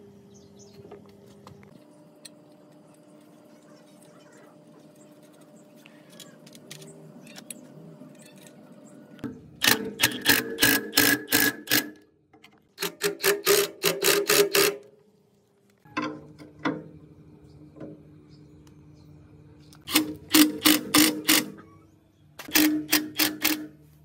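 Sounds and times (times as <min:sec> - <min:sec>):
ratchet-like mechanical clicking: 0:09.6 - 0:12.0, 0:12.8 - 0:14.8, 0:19.9 - 0:21.6, 0:22.4 - 0:23.8.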